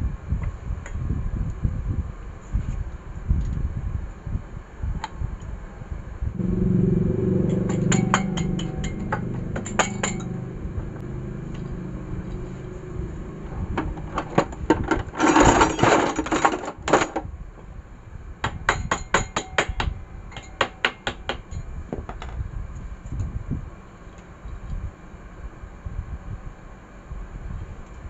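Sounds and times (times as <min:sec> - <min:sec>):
metal clatter: 0:07.5 - 0:11.0, 0:13.8 - 0:17.2
metal parts clinking: 0:14.2 - 0:17.2.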